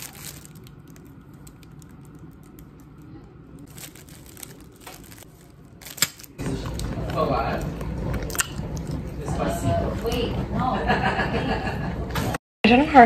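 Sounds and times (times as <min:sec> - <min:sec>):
plastic wrap crinkling: 0:00.0 - 0:07.7.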